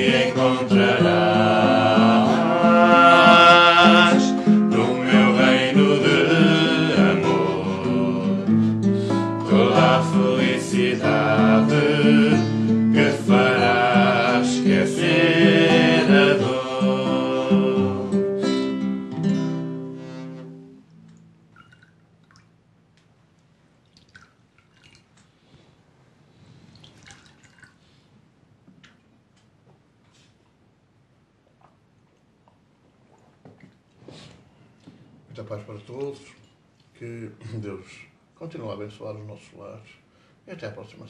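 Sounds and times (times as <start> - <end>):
people singing a religious song: 0.0 - 18.9
acoustic guitar: 0.0 - 22.8.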